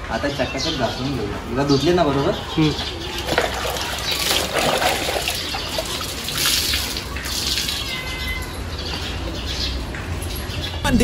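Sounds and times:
water splashing and dripping: 3.0s - 8.2s.

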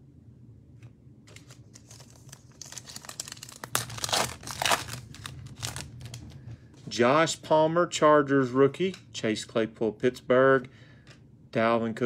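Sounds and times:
foil wrapper crinkling and tearing: 1.3s - 6.4s.

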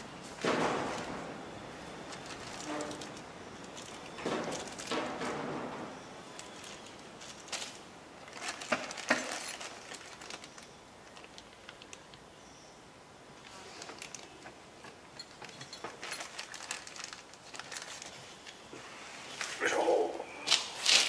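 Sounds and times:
plastic bag crinkling: 0.0s - 5.4s, 6.2s - 12.2s, 13.4s - 14.6s, 15.5s - 18.7s, 20.5s - 21.0s.

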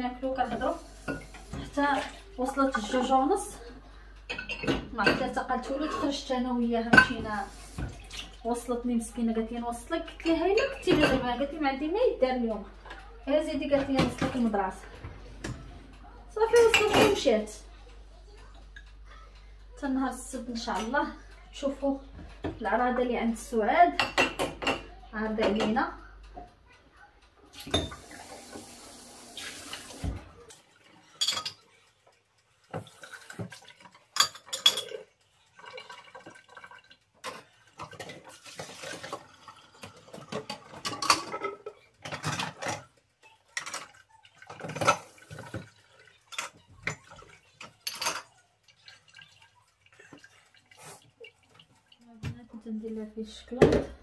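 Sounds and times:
dishes and cutlery clinking: 0.9s - 8.6s, 10.0s - 11.6s, 12.8s - 18.9s, 23.9s - 26.5s, 27.5s - 28.7s, 31.1s - 31.8s, 32.7s - 50.5s.

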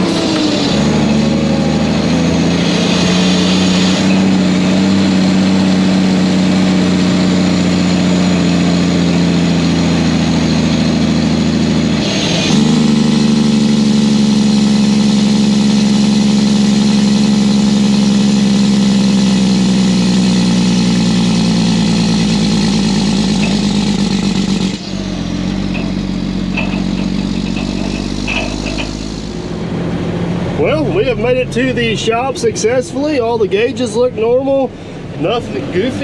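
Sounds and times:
diesel truck engine drone: 0.0s - 36.0s.

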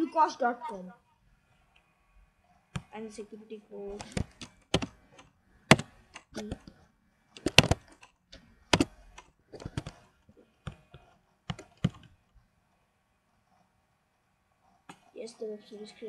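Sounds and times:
computer keyboard typing: 3.9s - 6.7s, 7.4s - 8.1s, 8.7s - 12.1s.

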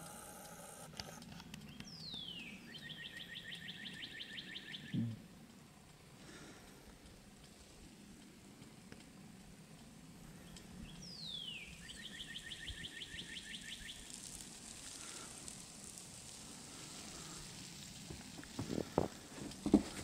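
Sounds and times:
songbird singing: 1.6s - 5.2s, 10.3s - 14.3s.

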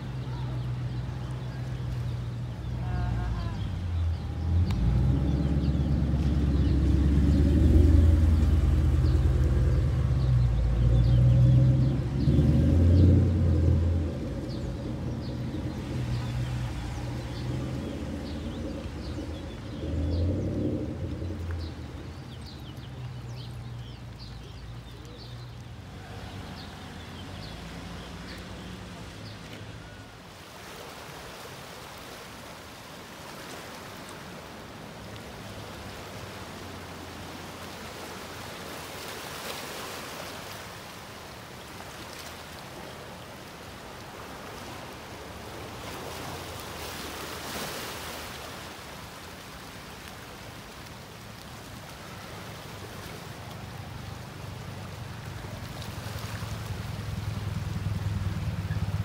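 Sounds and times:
water lapping on rocky shore: 0.0s - 59.0s
low hum: 3.6s - 22.6s.

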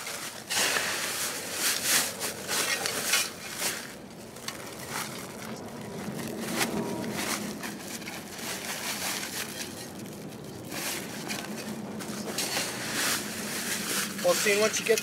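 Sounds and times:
gritty sand pouring off shovel: 0.0s - 3.8s
plastic sandbag rustling: 0.0s - 15.0s.

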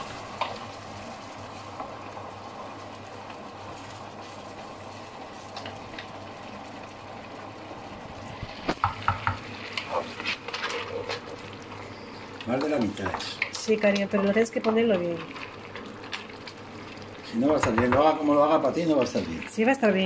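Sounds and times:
wooden spoon stirring rice: 8.8s - 16.4s.

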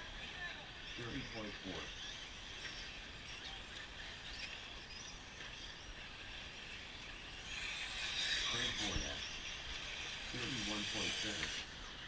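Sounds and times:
high motor whine and tyre noise: 0.0s - 12.0s
rising and falling motor whines: 0.0s - 12.0s.

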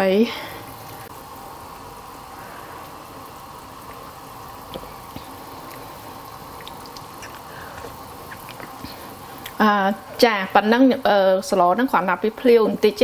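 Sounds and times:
soup boiling: 0.0s - 13.0s.

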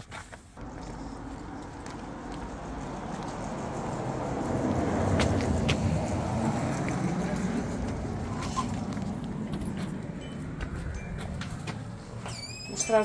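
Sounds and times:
footstep clicks: 0.0s - 3.6s, 5.1s - 5.9s, 6.8s - 12.4s
vehicle passing rumble: 0.6s - 13.0s.

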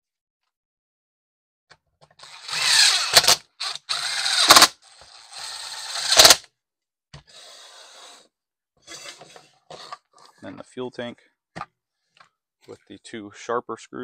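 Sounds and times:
power driver whirring: 2.2s - 6.5s
rattle of sharp clicks: 2.6s - 4.8s, 5.9s - 6.4s.

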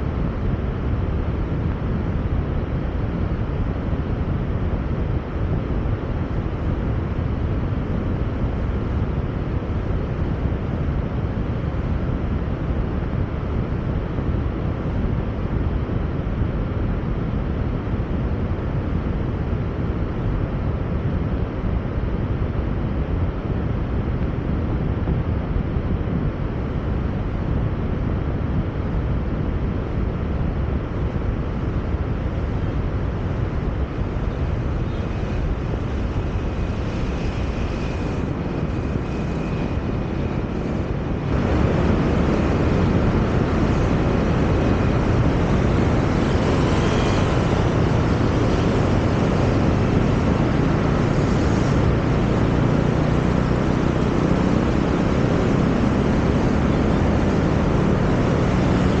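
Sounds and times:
car road and wind noise: 0.0s - 59.0s.

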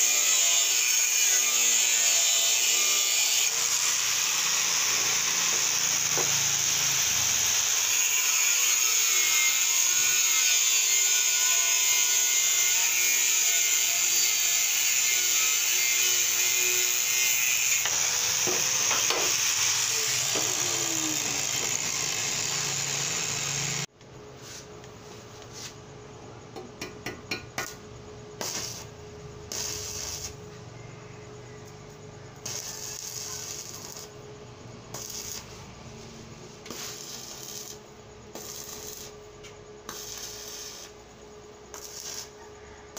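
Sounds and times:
angle grinder cutting steel: 0.0s - 23.9s, 32.4s - 34.1s.

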